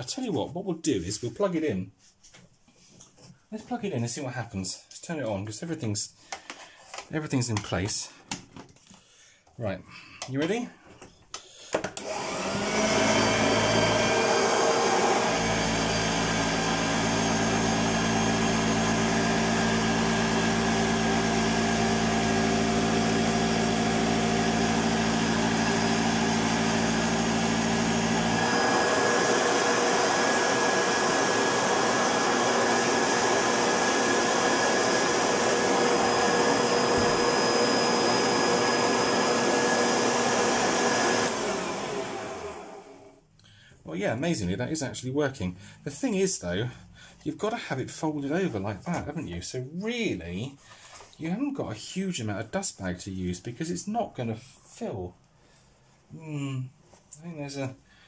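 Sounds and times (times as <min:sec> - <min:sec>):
vacuum cleaner motor running: 0:12.0 - 0:43.1.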